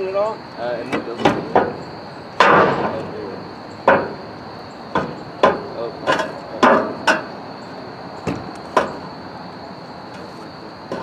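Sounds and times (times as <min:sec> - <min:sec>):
ringing metal knocks and bangs: 0:01.0 - 0:03.1, 0:03.8 - 0:04.3, 0:04.9 - 0:07.4.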